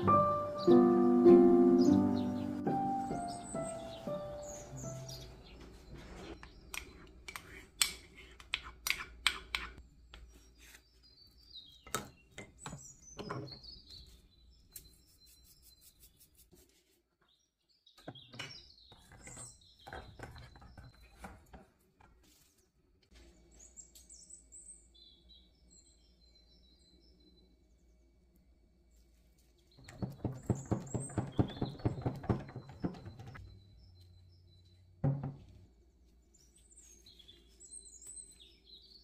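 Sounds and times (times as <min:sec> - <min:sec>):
small birds chirping: 0:00.0 - 0:16.5, 0:17.2 - 0:21.6, 0:22.4 - 0:28.3, 0:28.9 - 0:39.0.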